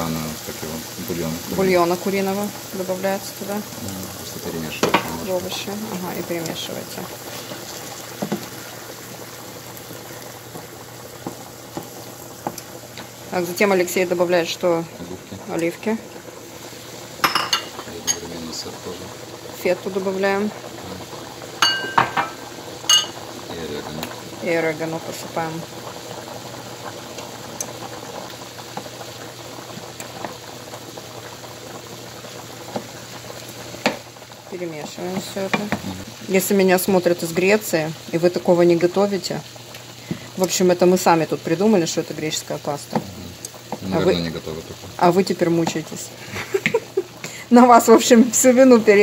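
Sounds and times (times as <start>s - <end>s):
broth bubbling in a pan: 0.0s - 49.0s
pot of water boiling: 0.0s - 49.0s
spoon knocking against pan: 17.2s - 17.8s, 21.6s - 23.2s.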